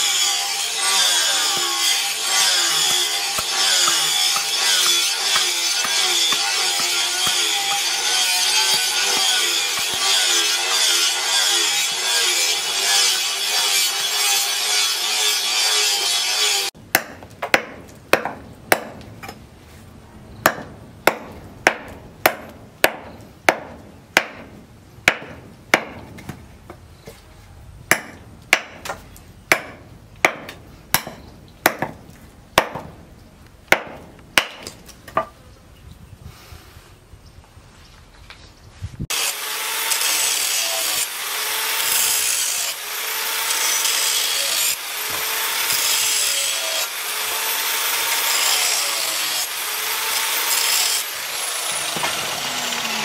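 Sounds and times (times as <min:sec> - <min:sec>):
hatchet chopping wood: 0:01.0 - 0:11.2, 0:16.8 - 0:19.4, 0:20.4 - 0:26.4, 0:27.9 - 0:33.0, 0:33.7 - 0:35.3, 0:41.0 - 0:46.1, 0:49.4 - 0:53.0.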